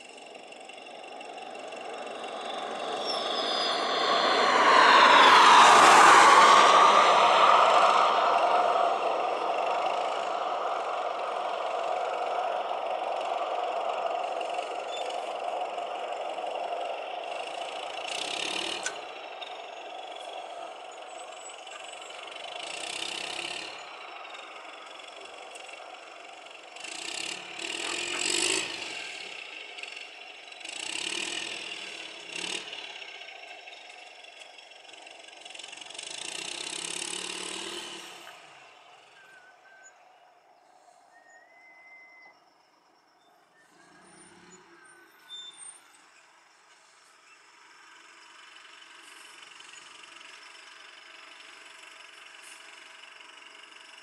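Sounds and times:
machine engine running: 0:00.0 - 0:38.7.

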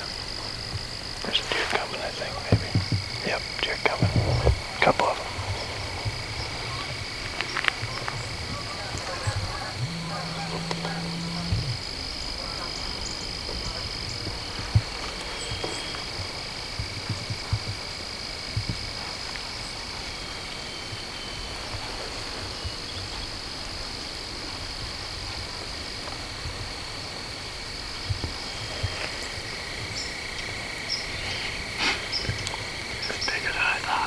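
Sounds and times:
animals trilling chorus: 0:00.0 - 0:17.8, 0:28.4 - 0:34.0
soft low thumps: 0:02.3 - 0:19.1.

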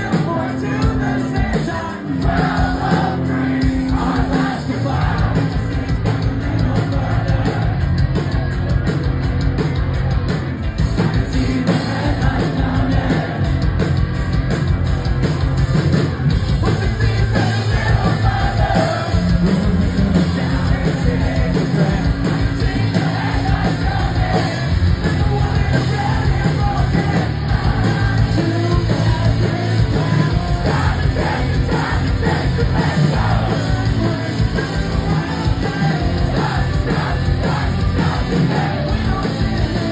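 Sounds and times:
person singing and yelling: 0:00.0 - 0:07.9, 0:16.6 - 0:39.9
bass guitar: 0:00.0 - 0:39.9
drums: 0:00.0 - 0:39.9
electric guitars: 0:00.0 - 0:39.9.

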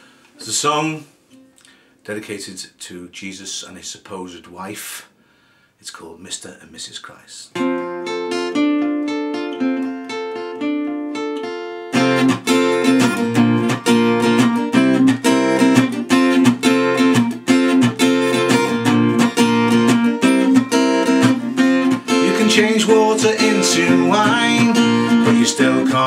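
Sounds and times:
acoustic guitar picked notes: 0:07.6 - 0:26.0
acoustic guitar strummed chords: 0:07.6 - 0:26.0.

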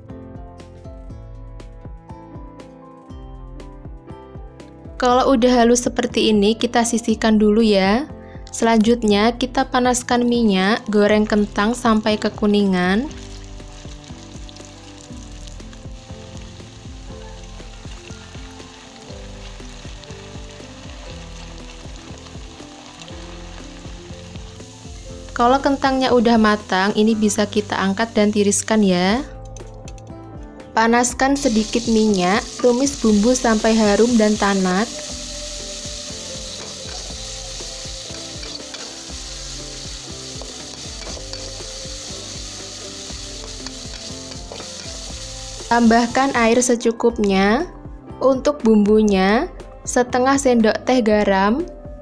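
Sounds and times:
soft background music with beat: 0:00.0 - 0:52.0
potatoes sizzling in hot oil: 0:11.2 - 0:28.9, 0:31.2 - 0:46.8
metal turner stirring: 0:38.1 - 0:41.7
metal spatula scraping a wok: 0:38.4 - 0:39.0.

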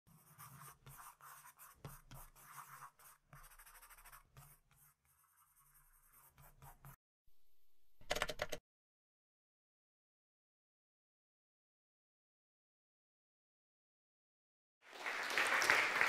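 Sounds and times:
pen scratching on paper: 0:00.1 - 0:07.0.

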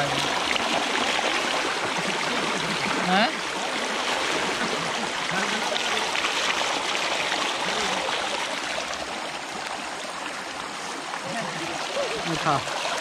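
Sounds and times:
water rushing through a channel: 0:00.0 - 0:13.0.

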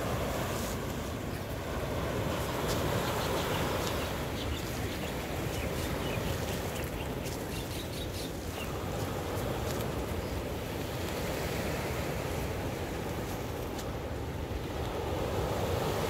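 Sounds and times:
surf rushing: 0:00.0 - 0:16.0
wind: 0:00.0 - 0:16.0
small birds chirping: 0:02.3 - 0:09.2.

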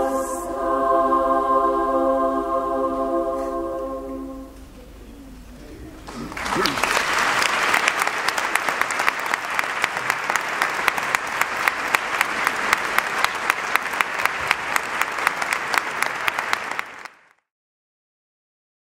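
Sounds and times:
audience applauding: 0:06.0 - 0:17.4.

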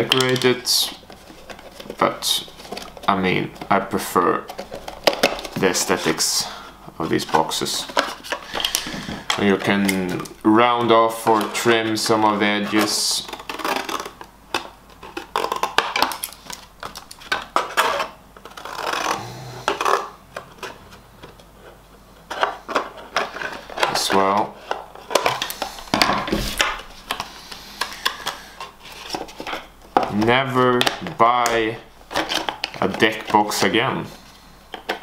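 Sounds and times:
carton rustling and crinkling: 0:00.0 - 0:15.8.

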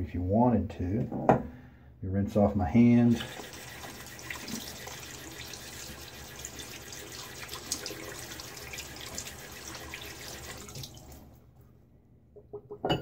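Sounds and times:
sink faucet running: 0:03.1 - 0:11.4
water splashing in basin: 0:03.2 - 0:11.3.

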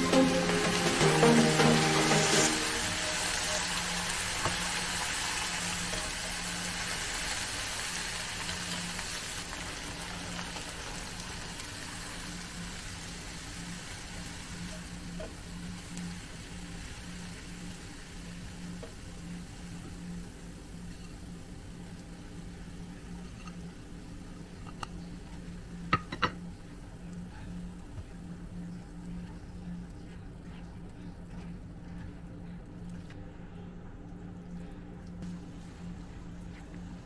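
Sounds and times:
vegetables sizzling in frying pan: 0:00.0 - 0:22.1.

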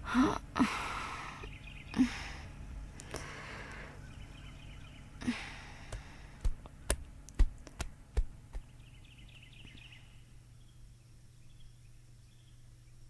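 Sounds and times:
breathy exhale: 0:00.0 - 0:04.1, 0:05.2 - 0:06.4.

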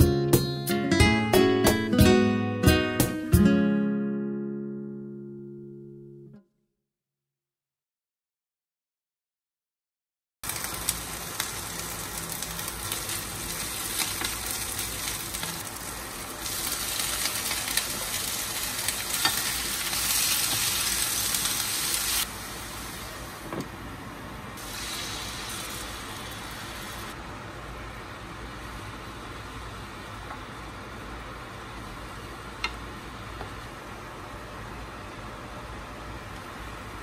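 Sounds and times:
food sizzling in a pan: 0:10.4 - 0:23.5, 0:24.6 - 0:27.2.

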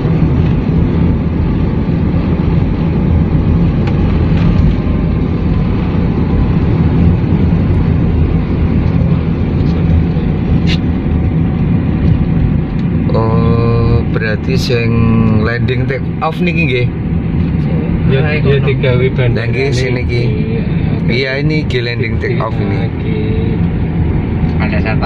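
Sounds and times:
car engine hum: 0:00.0 - 0:25.0
tyre and road noise: 0:00.0 - 0:25.0.

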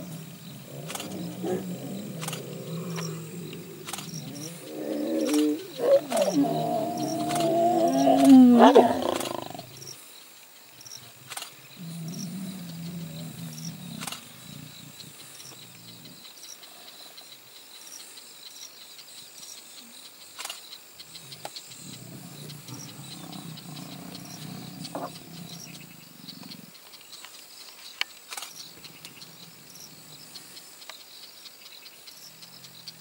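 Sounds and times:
lions growling: 0:00.0 - 0:10.0, 0:10.9 - 0:16.5, 0:21.0 - 0:26.8, 0:28.6 - 0:30.7.

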